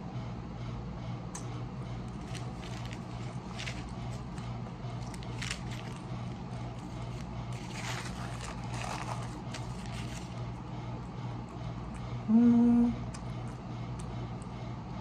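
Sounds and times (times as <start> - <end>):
steady low hum: 0.0 - 15.0
paper napkin rustling: 2.1 - 10.6.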